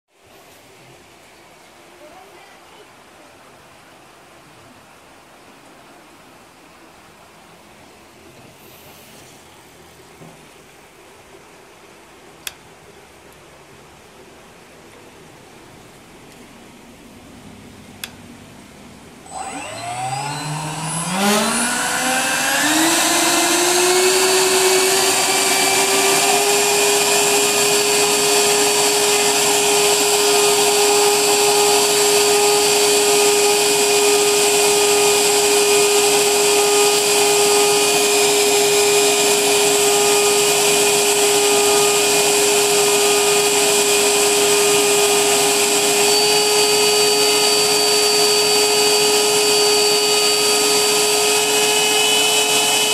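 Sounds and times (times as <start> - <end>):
electric motor whine: 19.2 - 52.9.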